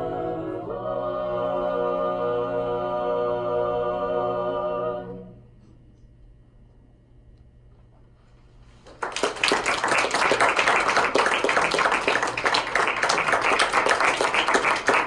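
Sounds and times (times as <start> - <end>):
audience applause: 8.8 - 15.0.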